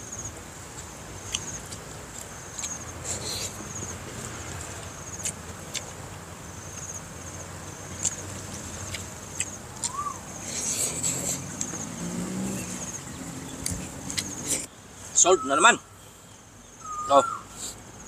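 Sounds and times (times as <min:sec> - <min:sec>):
insects chirping: 0:00.0 - 0:18.0
eating clicks and smacks: 0:05.1 - 0:06.0, 0:07.9 - 0:11.8.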